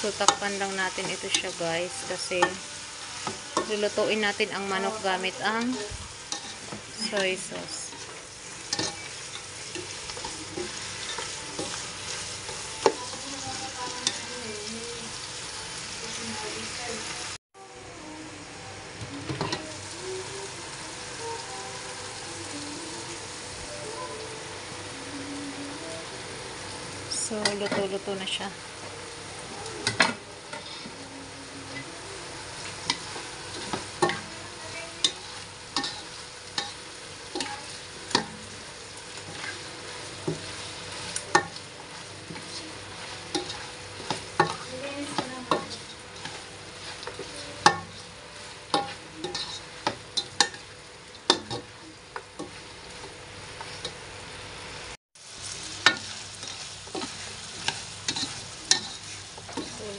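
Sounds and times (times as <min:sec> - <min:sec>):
chicken sizzling in a pan: 0:00.0 - 0:59.9
spatula clicking and scraping pan: 0:00.2 - 0:02.6, 0:03.2 - 0:14.4, 0:29.8 - 0:31.0, 0:32.6 - 0:34.3, 0:34.9 - 0:54.0, 0:55.8 - 0:59.9.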